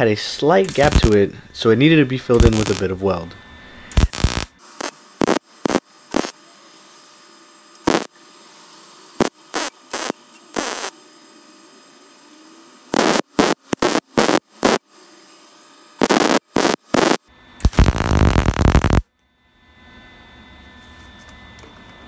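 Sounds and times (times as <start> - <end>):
welder crackling: 0.0 - 1.3, 2.2 - 3.1, 3.9 - 6.4, 7.8 - 8.2, 9.2 - 11.0, 12.9 - 14.8, 16.0 - 19.0.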